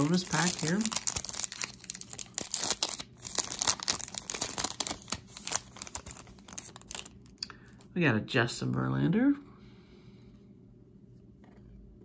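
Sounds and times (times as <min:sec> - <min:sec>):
foil wrapper tearing and crinkling: 0:00.0 - 0:07.4.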